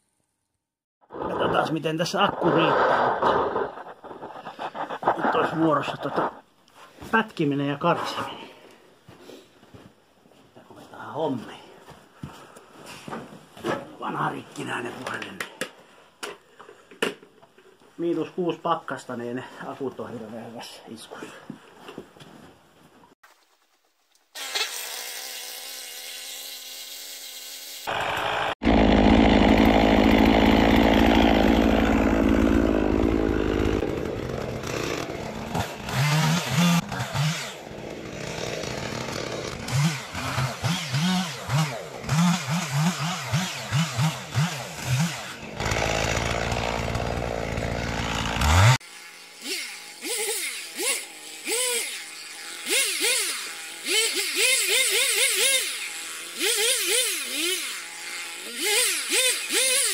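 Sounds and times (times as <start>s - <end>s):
chainsaw cutting wood: 2.3s - 6.4s, 24.3s - 59.9s.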